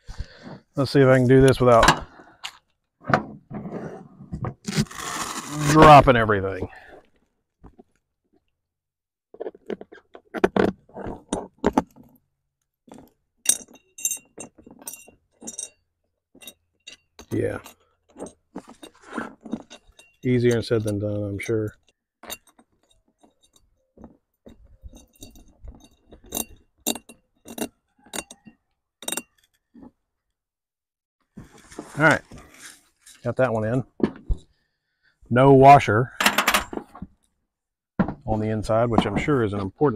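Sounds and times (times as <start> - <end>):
metal hardware clinking: 13.4 - 15.8, 16.4 - 23.7, 24.5 - 29.6, 36.2 - 36.8
soft handling noise: 31.3 - 34.5.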